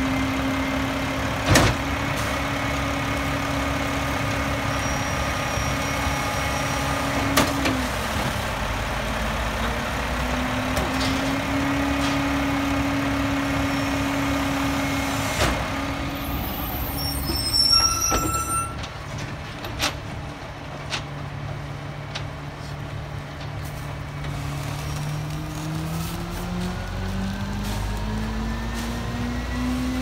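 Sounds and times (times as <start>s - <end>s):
garbage truck diesel engine: 0.0s - 30.0s
high squeals: 16.2s - 18.8s.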